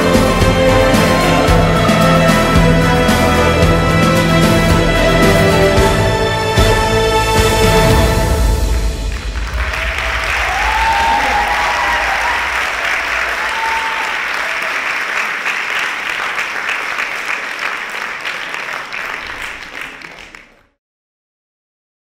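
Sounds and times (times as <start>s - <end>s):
audience applauding: 0.0s - 5.8s, 8.8s - 20.8s
short voiced cheers: 9.6s - 15.5s.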